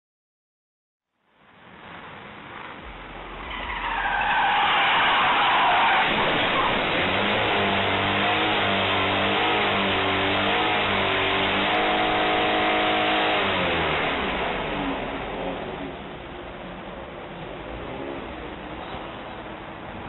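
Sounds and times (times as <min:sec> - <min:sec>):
dense rushing noise: 0:01.4 - 0:10.2
car engine revving: 0:01.8 - 0:16.6.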